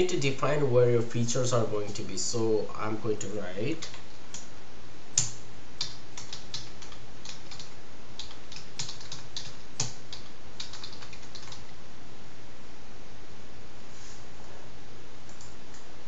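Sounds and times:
steady background hiss: 0:00.0 - 0:16.0
typing on a computer keyboard: 0:03.8 - 0:04.4, 0:05.2 - 0:11.7.

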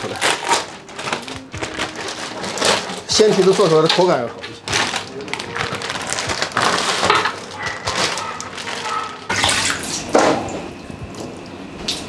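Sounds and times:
wet sloshing and splashing: 0:06.1 - 0:12.0.

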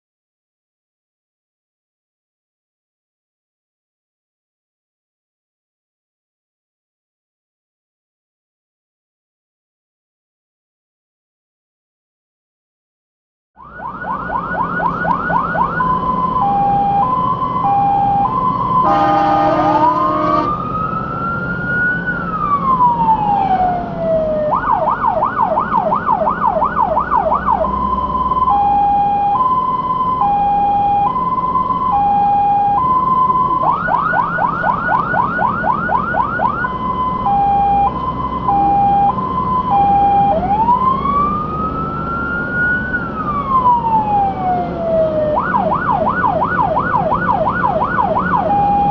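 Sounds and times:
fire engine siren: 0:13.6 - 0:48.9
horn blast: 0:18.8 - 0:20.6.

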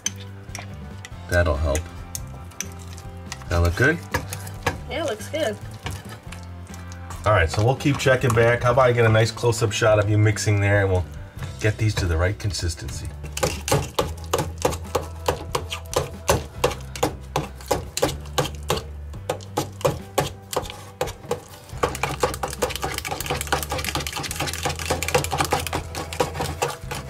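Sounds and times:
whisk scraping a saucepan: 0:02.6 - 0:04.8, 0:05.7 - 0:06.8, 0:20.1 - 0:27.0.

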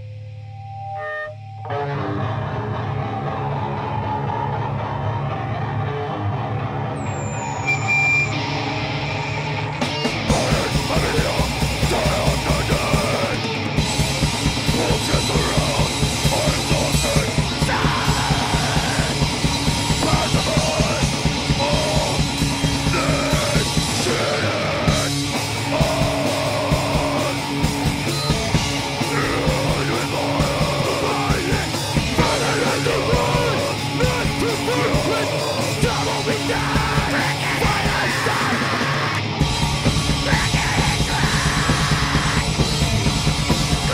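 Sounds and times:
distorted guitars and bass: 0:00.0 - 0:43.9
fast dense drumming: 0:10.1 - 0:43.9
person yelling vocals: 0:14.8 - 0:19.2, 0:29.1 - 0:39.3, 0:40.2 - 0:42.6.

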